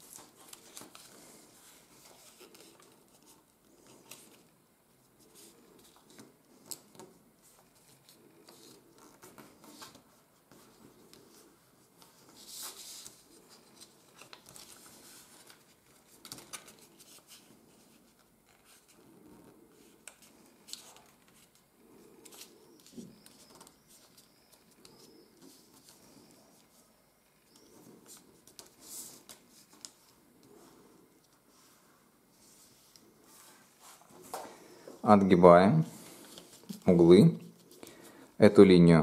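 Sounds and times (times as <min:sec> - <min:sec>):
paper rustling and crackling: 0:00.0 - 0:04.5, 0:05.2 - 0:26.8.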